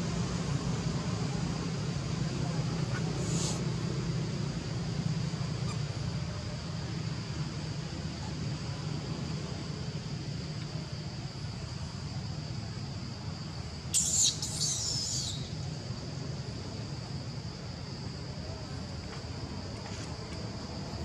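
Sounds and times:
steady high-pitched hum: 0.0 - 21.0
squeaky animal calls: 14.0 - 15.5.

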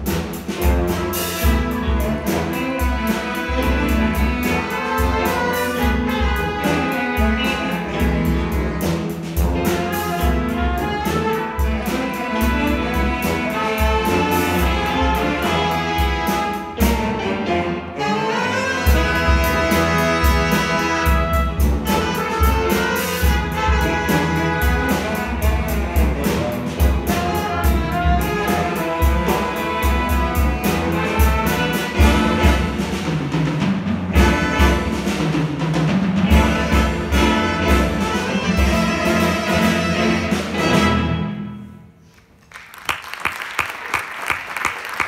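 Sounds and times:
jazz combo playing funk: 0.0 - 41.5
audience applause: 42.2 - 45.0.

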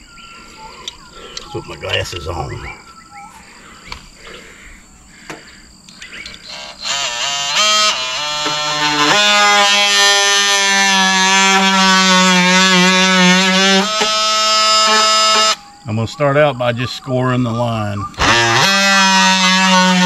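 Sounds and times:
multi-tool buzzing whine cutting wood: 5.2 - 15.6, 18.2 - 20.0.

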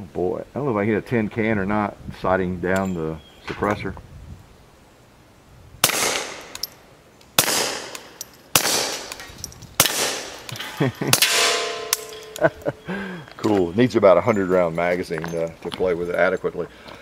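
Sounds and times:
suppressed pistol shots: 5.8 - 6.7, 7.4 - 9.2, 9.8 - 12.4.

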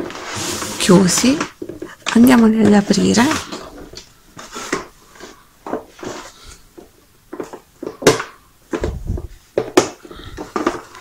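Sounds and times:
plastic toy legs clicking and knocking: 7.3 - 9.0, 9.6 - 11.0.

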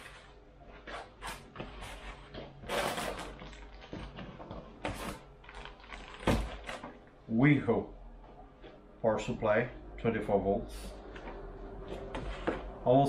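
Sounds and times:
plastic packaging crinkling: 2.7 - 7.1.

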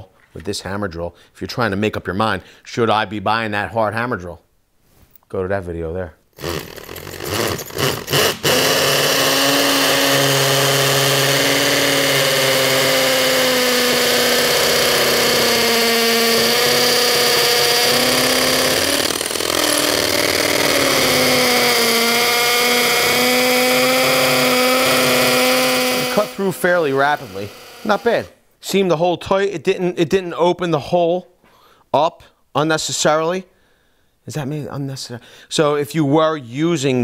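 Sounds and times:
hammer drill boring into concrete: 6.4 - 28.3.

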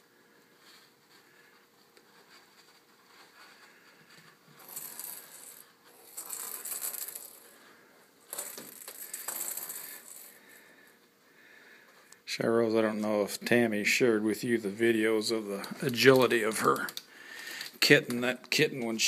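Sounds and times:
plastic ball clattering on wood floor: 8.3 - 10.3.

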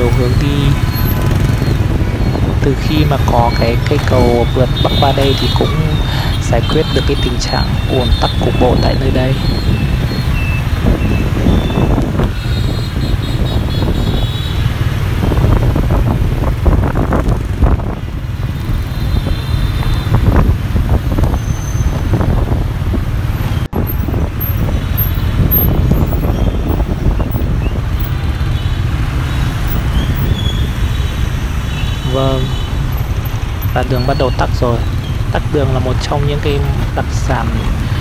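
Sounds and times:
wind rumble on microphone: 0.0 - 31.4
motor scooter traffic: 0.0 - 38.0.

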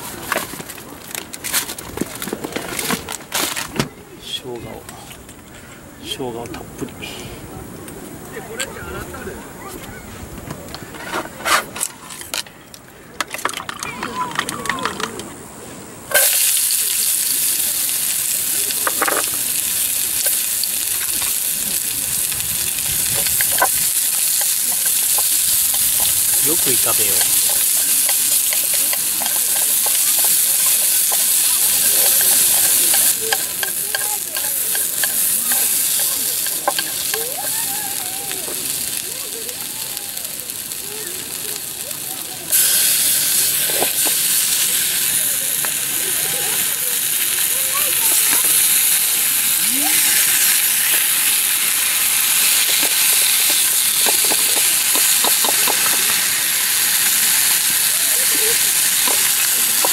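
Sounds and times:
chopsticks scraping a pan: 10.9 - 12.3, 22.8 - 37.3, 48.1 - 59.9
onions sizzling in a frying pan: 16.1 - 59.9
chopsticks clicking: 27.2 - 37.3.

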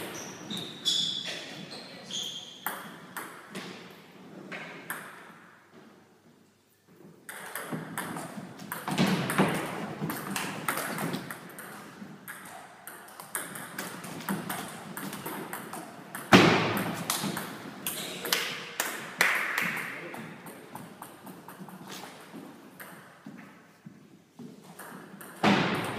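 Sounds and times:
loud table tennis hit: 7.3 - 20.0, 24.8 - 25.9.

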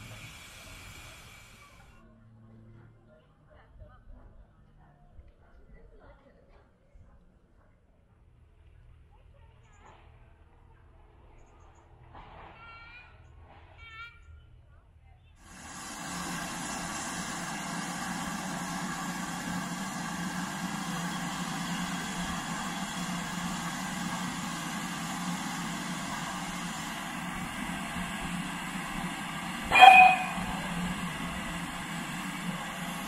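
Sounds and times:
steam hissing: 0.0 - 2.0, 15.4 - 33.0
steam whistle blast: 29.6 - 31.0.

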